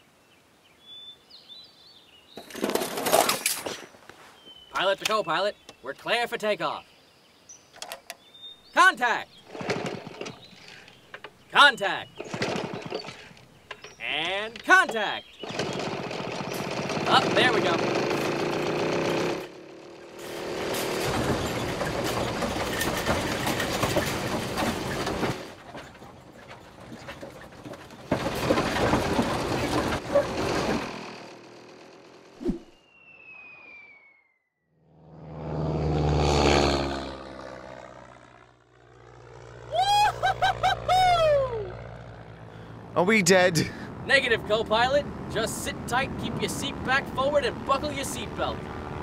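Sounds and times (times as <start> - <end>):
cart wheels rattling on dirt: 2.4 - 3.8, 9.3 - 11.5, 12.1 - 32.2
small engine running: 9.4 - 11.4, 12.1 - 14.0, 15.3 - 32.6, 34.8 - 49.0
person yelling: 39.7 - 41.7.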